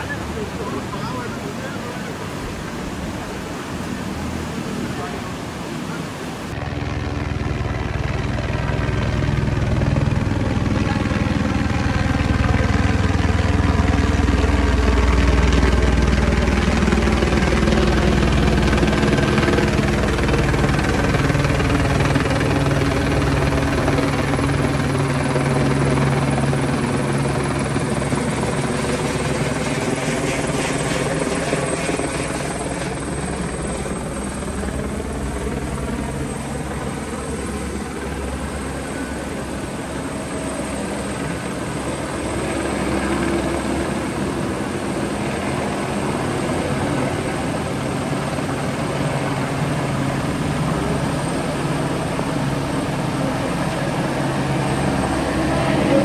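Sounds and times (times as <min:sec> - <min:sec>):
helicopter flying overhead: 0:00.0 - 0:56.0.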